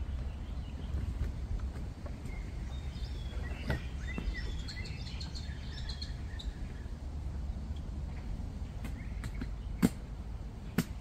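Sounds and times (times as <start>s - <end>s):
low steady rumble: 0.0s - 11.0s
small birds chirping: 0.0s - 11.0s.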